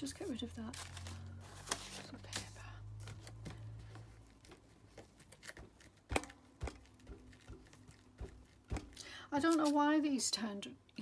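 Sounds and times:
paper taps clicks and rustles: 0:03.1 - 0:09.0.

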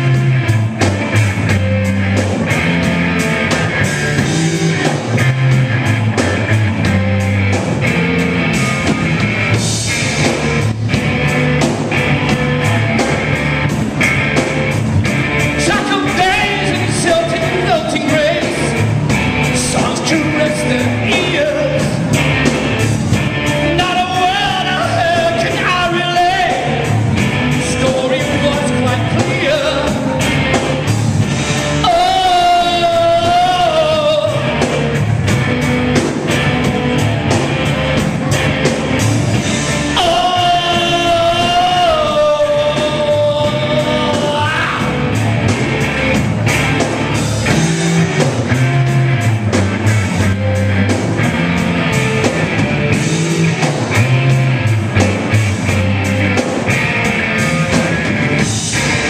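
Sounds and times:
live rock band playing: 0:00.0 - 0:59.0
man singing: 0:15.5 - 0:18.9, 0:19.5 - 0:22.1, 0:23.6 - 0:30.4, 0:31.5 - 0:35.0, 0:39.7 - 0:45.3.

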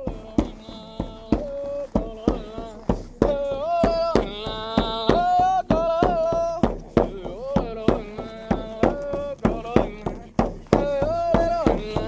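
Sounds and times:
frame drum beats: 0:00.0 - 0:12.0.

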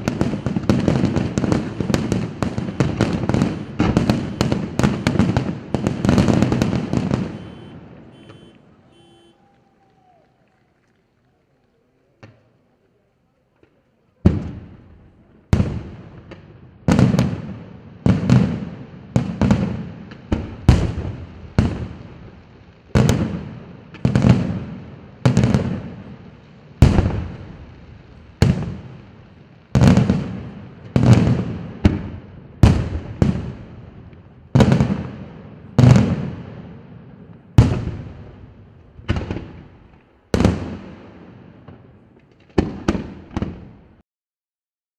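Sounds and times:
firework shells bursting: 0:00.0 - 0:10.1.

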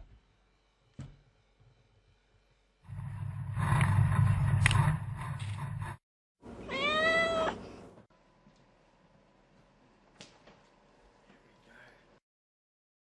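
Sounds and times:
low rumbling noise: 0:02.9 - 0:06.0
kitten meowing: 0:06.7 - 0:07.6.

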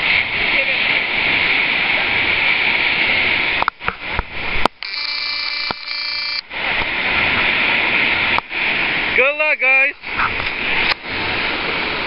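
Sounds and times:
ocean surf: 0:00.0 - 0:12.0
clicks: 0:04.7 - 0:06.0
electronic buzz of fixed tones: 0:04.8 - 0:06.4
wind on microphone: 0:10.0 - 0:12.0.

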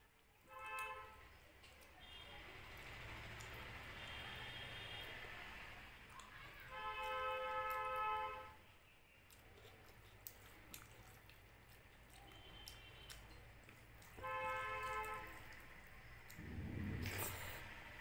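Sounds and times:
chewing: 0:09.2 - 0:17.8.

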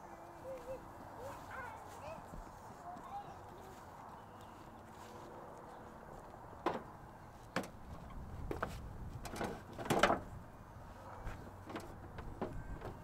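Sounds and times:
knocks and clunks: 0:06.6 - 0:10.4, 0:11.6 - 0:13.0.

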